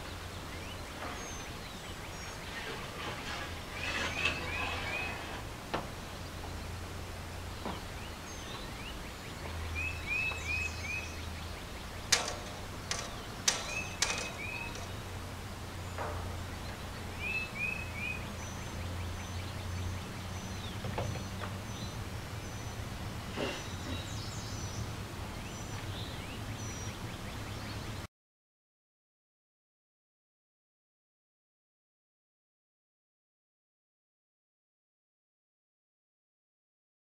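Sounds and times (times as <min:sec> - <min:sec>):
bird chirping: 0:00.0 - 0:28.1
metal mast clicks and knocks: 0:12.0 - 0:15.1.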